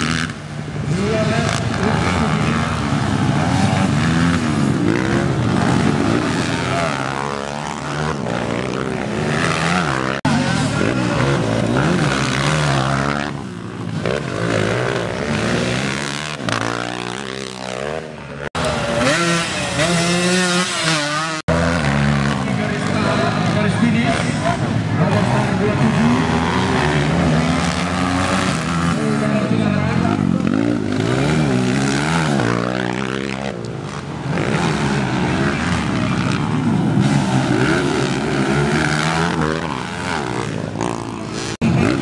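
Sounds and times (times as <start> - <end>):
dirt bike engines revving: 0.0 - 42.0.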